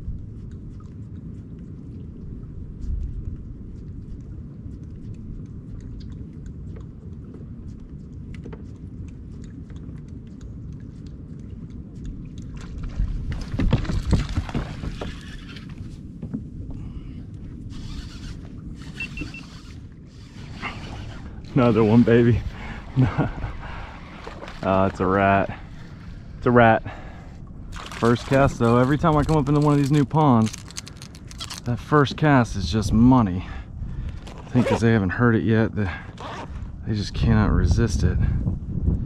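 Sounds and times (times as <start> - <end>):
wind rumble on microphone: 0.0 - 39.0.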